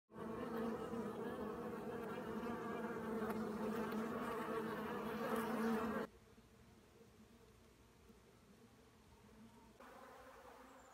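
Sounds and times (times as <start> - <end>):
honeybees buzzing: 0.1 - 6.1, 9.8 - 10.9.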